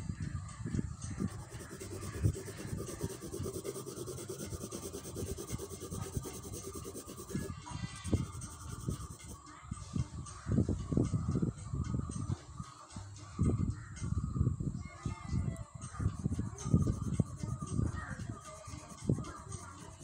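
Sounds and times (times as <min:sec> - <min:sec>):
colour pencil shading on paper: 0:01.1 - 0:09.4, 0:16.0 - 0:20.0.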